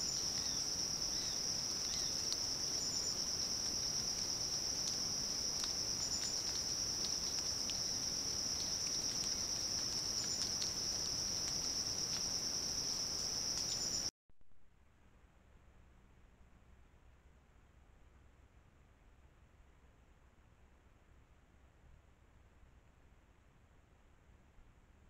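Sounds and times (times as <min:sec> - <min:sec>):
high insect chirps: 0:00.0 - 0:14.1
insect chorus buzzing: 0:00.0 - 0:14.1.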